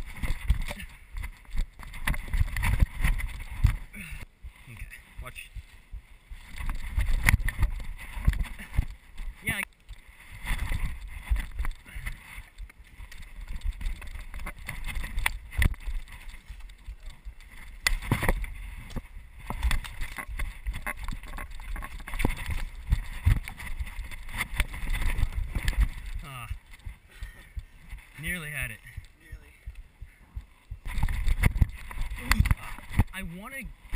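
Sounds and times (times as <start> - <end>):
wind rumble on camera: 0.0 - 33.9.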